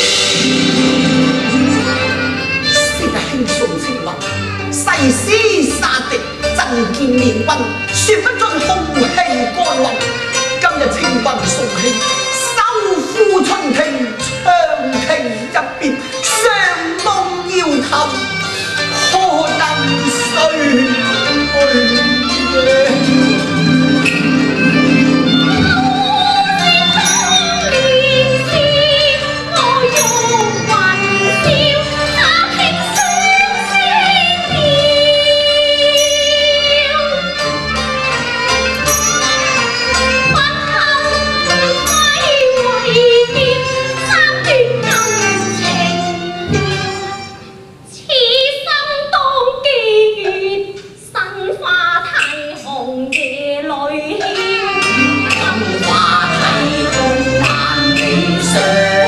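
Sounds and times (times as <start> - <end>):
accompanying ensemble: 0.0 - 47.9, 54.0 - 59.0
high voice singing opera: 25.5 - 37.4, 40.2 - 47.1, 48.0 - 59.0.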